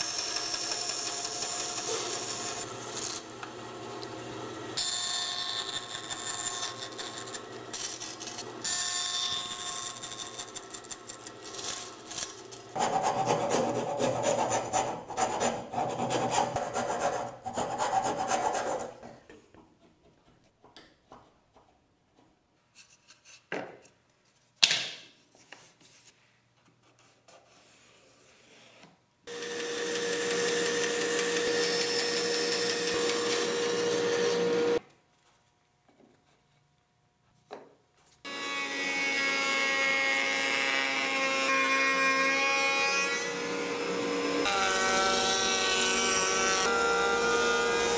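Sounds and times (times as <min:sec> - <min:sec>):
bandsaw cutting wood: 0:00.0 - 0:19.0, 0:29.3 - 0:34.8, 0:43.0 - 0:47.9.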